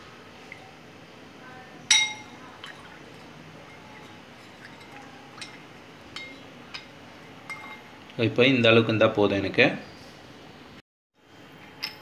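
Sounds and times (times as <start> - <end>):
metal spoon clinking against glass bowl: 1.9 - 2.4, 3.6 - 7.9.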